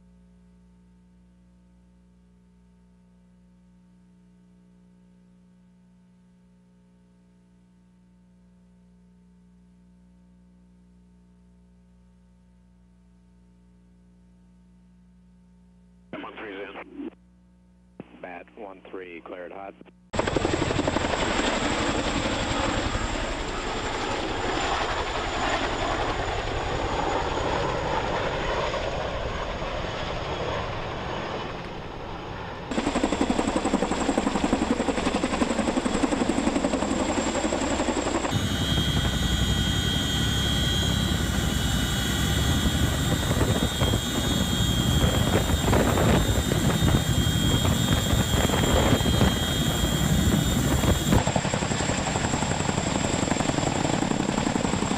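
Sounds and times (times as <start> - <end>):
helicopter rotor and engine: 20.2 - 54.9
high whine: 37.8 - 52.0.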